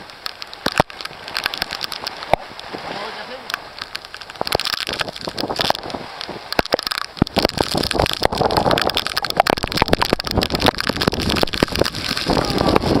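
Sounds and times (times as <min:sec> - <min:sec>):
raindrops striking: 0:00.0 - 0:13.0
wind rushing through window: 0:04.4 - 0:13.0.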